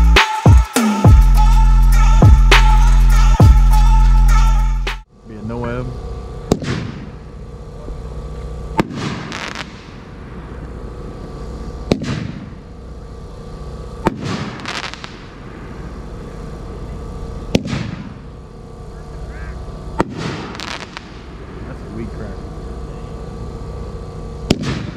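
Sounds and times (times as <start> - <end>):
firework bursts crackling: 5.5 - 24.9
firework launch thumps: 6.5 - 7.1, 8.8 - 10.0, 11.8 - 12.5, 14.0 - 15.3, 17.5 - 18.2, 20.0 - 21.2, 24.4 - 24.9.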